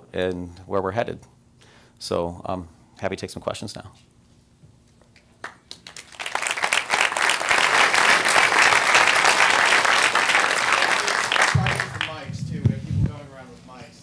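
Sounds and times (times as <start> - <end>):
audience applauding: 5.4 - 12.2.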